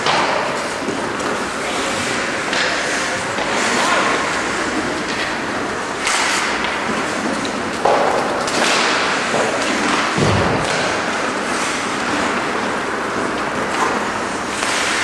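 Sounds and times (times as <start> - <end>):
hockey sticks knocking puck: 0.0 - 15.0
skate blades scraping ice: 0.2 - 15.0.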